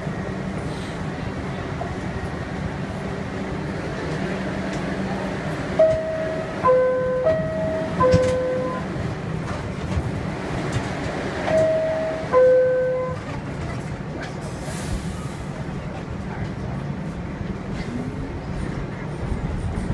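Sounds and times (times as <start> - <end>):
train motors humming: 0.0 - 19.9.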